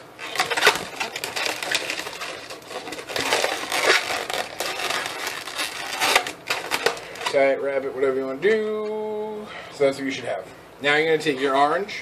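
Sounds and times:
balloon squeaking and rubbing: 0.0s - 7.4s.

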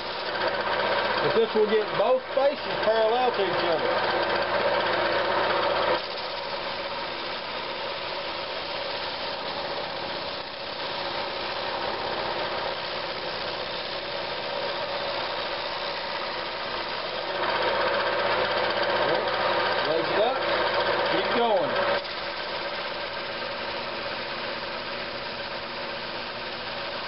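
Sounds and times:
drum sander sanding wood: 0.0s - 27.0s.

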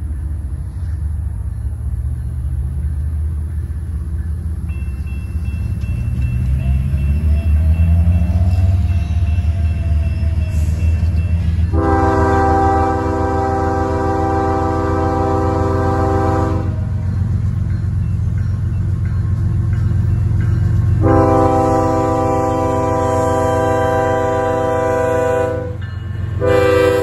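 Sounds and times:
diesel locomotive rumble: 0.0s - 27.0s
train air horn blast: 11.7s - 16.9s, 21.0s - 25.8s, 26.4s - 27.0s.

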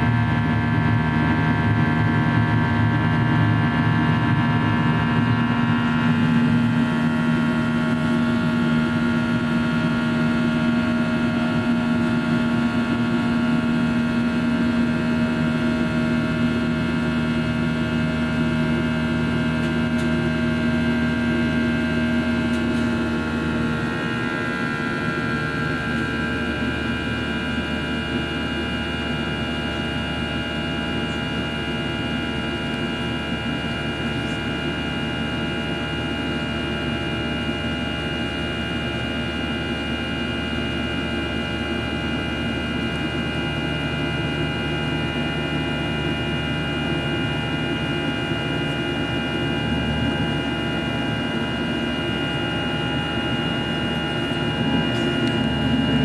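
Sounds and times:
jet engines rushing drone: 0.0s - 56.0s
high whining tones: 51.6s - 56.0s.

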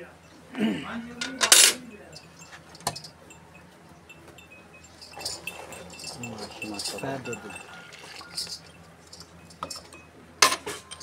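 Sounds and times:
metal bucket handles clanking: 1.2s - 3.3s, 4.3s - 11.0s.

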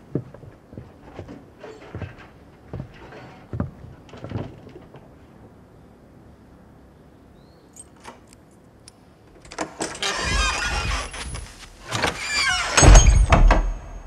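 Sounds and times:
door squeak: 9.8s - 14.0s.

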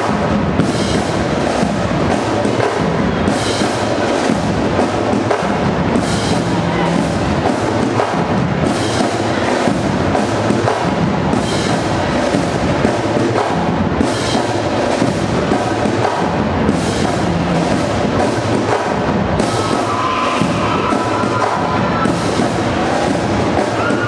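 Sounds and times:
bass drums: 0.0s - 24.0s
snare drums: 0.0s - 24.0s
brass instruments: 16.3s - 24.0s.

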